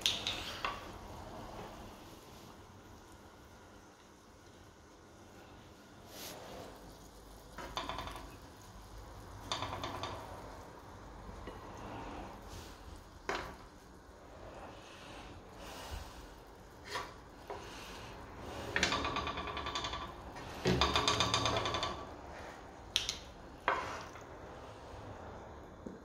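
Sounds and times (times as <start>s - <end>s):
tongs tapping frying pan: 7.5s - 8.6s, 9.4s - 10.5s.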